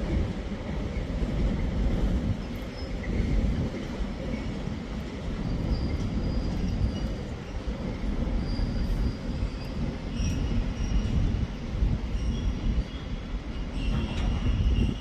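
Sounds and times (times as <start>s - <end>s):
train wagons rumbling on rails: 0.0s - 15.0s
high-pitched wheel squeals: 8.4s - 11.3s, 12.1s - 15.0s.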